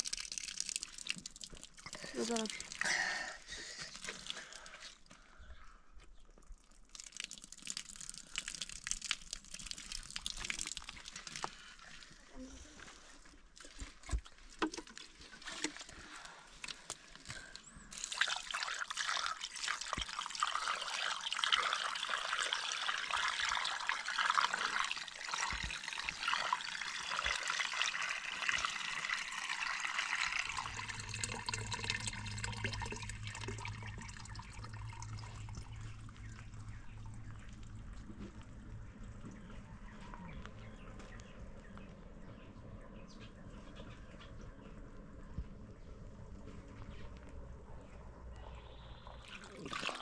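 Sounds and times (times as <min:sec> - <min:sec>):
liquid trickling and splashing: 0:00.0 - 0:05.2, 0:06.3 - 0:39.4, 0:49.0 - 0:50.0
low steady hum: 0:07.4 - 0:50.0.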